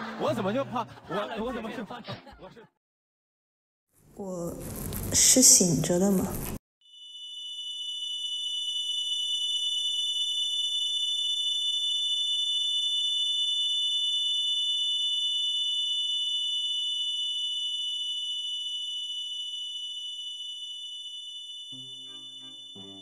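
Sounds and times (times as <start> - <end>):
high-pitched electronic ringing tone: 6.8 - 23.0.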